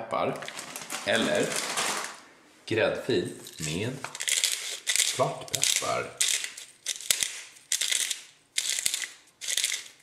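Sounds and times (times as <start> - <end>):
pepper mill grinding: 3.4 - 10.0.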